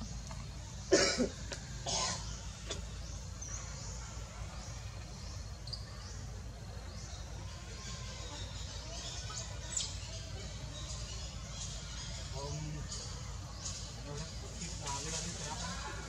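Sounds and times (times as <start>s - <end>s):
faint high chirps: 1.2s - 15.0s.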